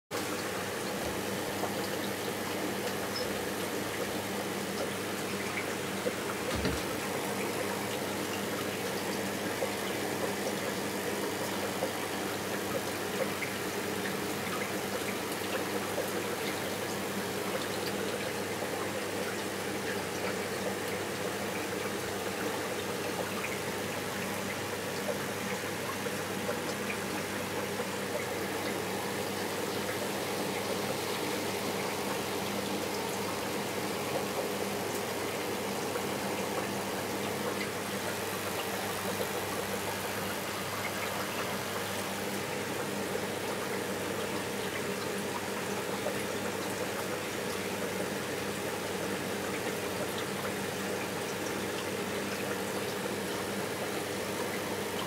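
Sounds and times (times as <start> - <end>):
aquarium pumps humming: 0.1 - 55.0
circulating water: 0.1 - 55.0.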